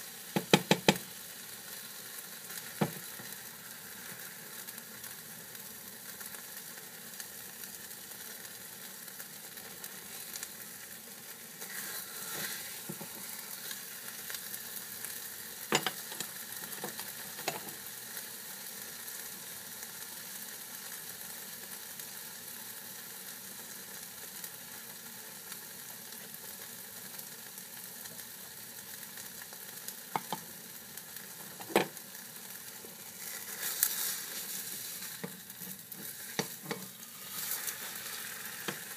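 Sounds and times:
eggs sizzling in a frying pan: 0.0s - 38.9s
spatula knocking on pan: 0.4s - 1.0s, 15.8s - 16.2s, 31.6s - 31.9s
spatula stirring and scraping: 11.6s - 13.9s, 33.1s - 38.9s.

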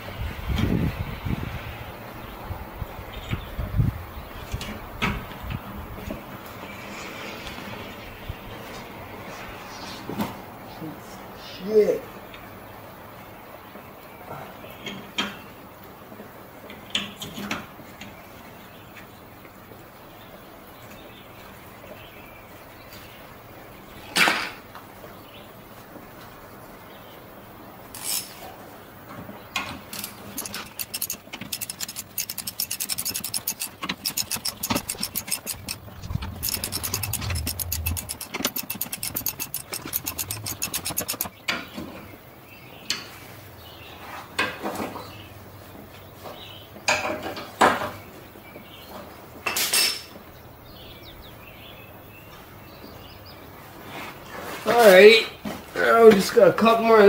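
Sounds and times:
hand ratchet clicking: 29.9s - 41.4s
metal tool knocking on metal: 30.0s - 41.4s.

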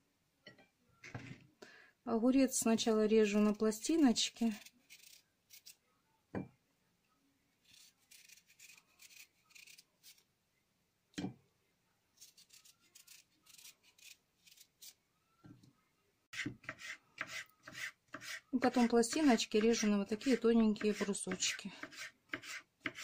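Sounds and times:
knife slicing scrapes: 7.7s - 10.2s, 12.2s - 15.0s, 16.4s - 18.9s, 19.6s - 23.0s.

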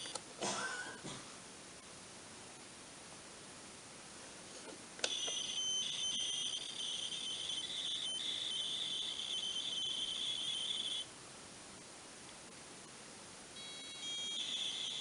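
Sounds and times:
shrill warbling data tone: 5.1s - 11.1s, 13.6s - 15.0s.

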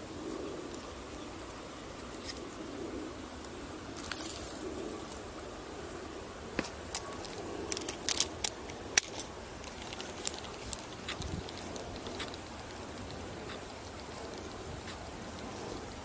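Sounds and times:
steady outdoor background: 0.0s - 16.0s.

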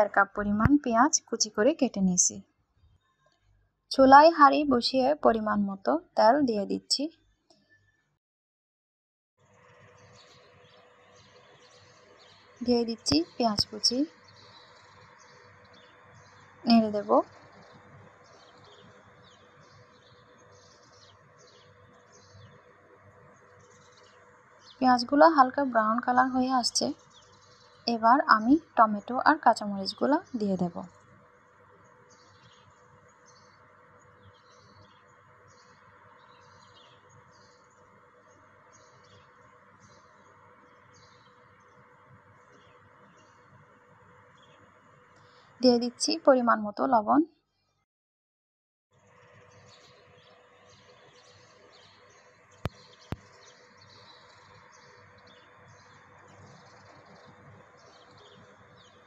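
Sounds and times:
faint bird chirps: 7.6s - 8.1s, 9.9s - 22.7s, 49.3s - 59.0s.

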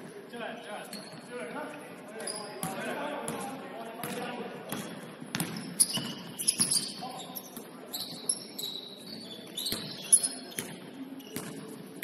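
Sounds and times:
basketball bouncing: 4.0s - 6.8s.

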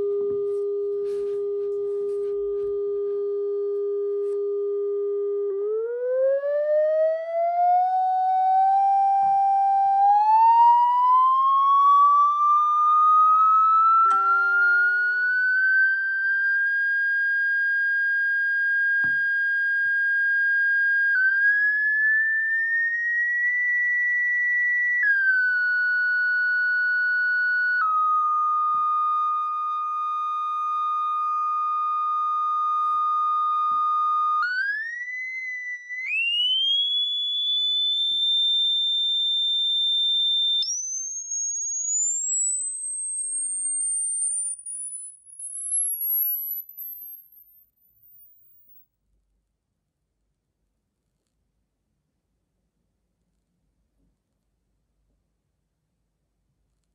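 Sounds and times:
electronic test tone: 0.0s - 5.6s, 12.3s - 21.4s, 27.9s - 48.8s.

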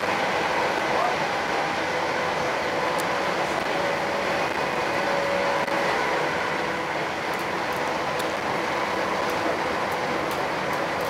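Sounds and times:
train wheels rumbling on rail: 0.0s - 11.0s.

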